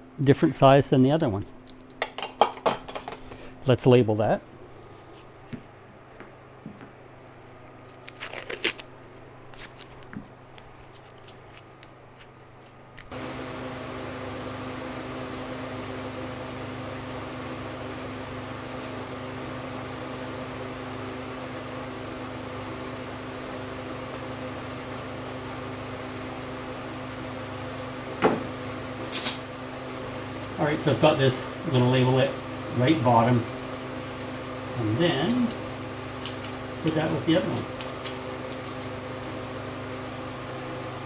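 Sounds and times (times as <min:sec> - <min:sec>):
tape tearing off roll: 0:07.8 - 0:12.3
machine hum with hiss: 0:13.0 - 0:41.0.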